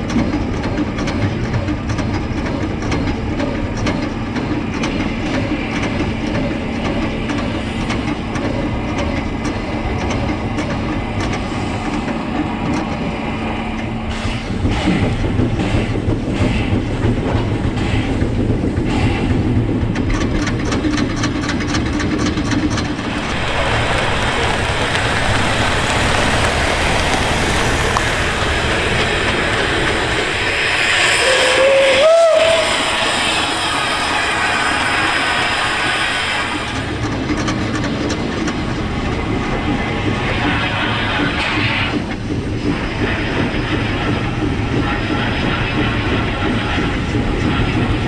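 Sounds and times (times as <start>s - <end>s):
wheels rumbling on rail: 0.0s - 48.0s
low hum: 6.2s - 48.0s
steam hiss: 22.9s - 37.0s.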